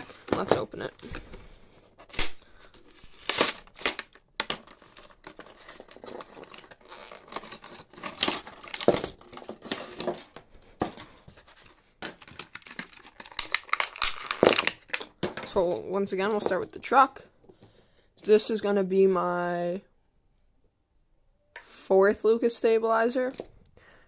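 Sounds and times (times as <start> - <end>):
plastic blister pack tearing: 2.0 - 10.4, 12.1 - 15.2.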